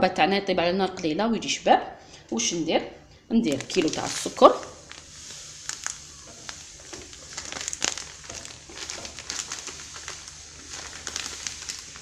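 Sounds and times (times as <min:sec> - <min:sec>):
plastic bag crinkling: 0:03.4 - 0:12.0
sugar pouring into pan: 0:03.6 - 0:12.0.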